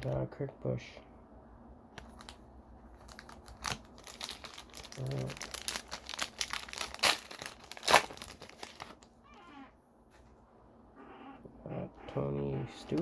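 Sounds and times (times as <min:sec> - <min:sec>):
foil wrapper crinkling and tearing: 0:02.0 - 0:09.1.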